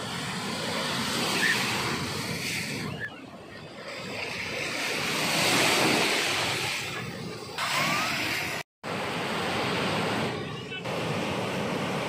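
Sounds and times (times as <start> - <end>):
ocean surf washing on beach: 0.0 - 12.0.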